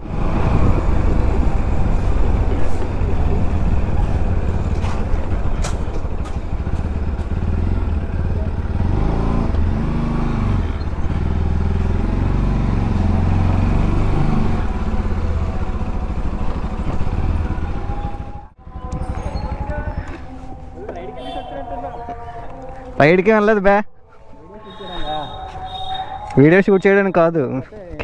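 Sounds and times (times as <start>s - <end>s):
motorcycle engine revving: 0.0s - 21.6s.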